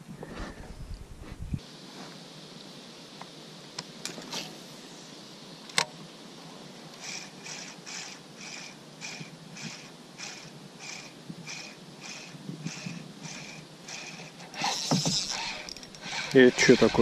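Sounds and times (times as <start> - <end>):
fishing reel clicks: 7.0 - 17.0
reel cranking: 7.0 - 17.0.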